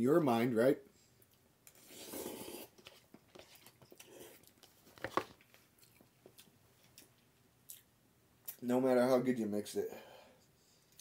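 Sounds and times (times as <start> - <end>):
person chewing: 1.2 - 8.6
person slurping noodles: 1.7 - 2.8.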